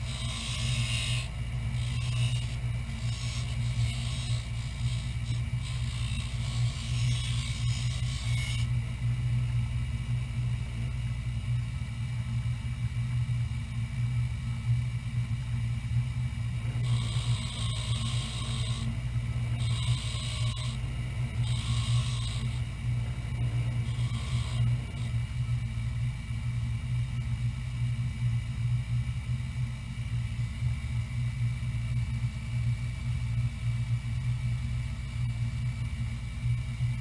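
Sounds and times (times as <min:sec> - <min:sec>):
wood grinding on wheel: 0:00.0 - 0:08.7, 0:16.8 - 0:18.9, 0:19.6 - 0:22.7, 0:23.8 - 0:25.1
bench grinder motor humming: 0:00.0 - 0:10.4, 0:16.2 - 0:26.4.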